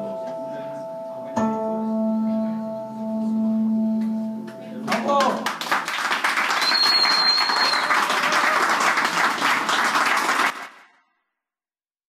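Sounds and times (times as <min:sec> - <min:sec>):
audience applauding: 0:04.9 - 0:10.9
high whistle: 0:06.5 - 0:08.2.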